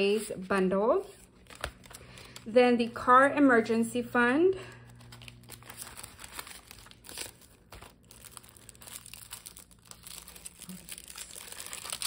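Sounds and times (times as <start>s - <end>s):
plastic packaging crinkling: 4.8s - 12.0s
small crackles: 8.1s - 12.0s.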